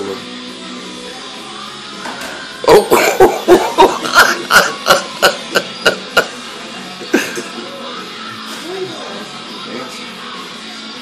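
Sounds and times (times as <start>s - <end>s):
person laughing hard: 2.7s - 6.4s, 7.1s - 7.5s.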